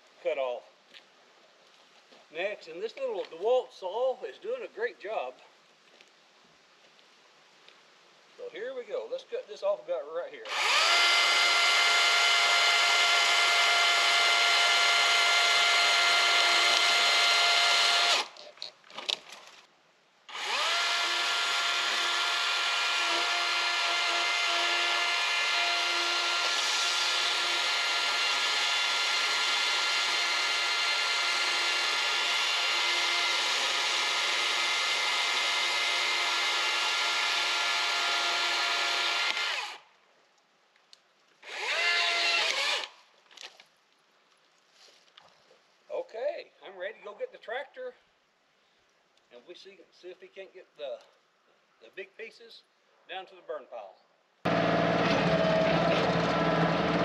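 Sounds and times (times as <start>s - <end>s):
battery chainsaw cutting wood: 10.4s - 18.4s, 20.3s - 39.8s, 41.4s - 42.9s, 54.5s - 57.0s.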